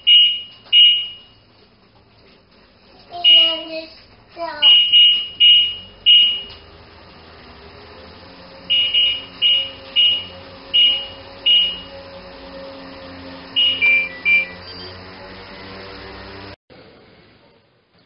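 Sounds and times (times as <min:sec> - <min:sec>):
washing machine beeps: 0:00.0 - 0:01.5, 0:03.2 - 0:03.8, 0:04.6 - 0:06.6, 0:08.3 - 0:16.0.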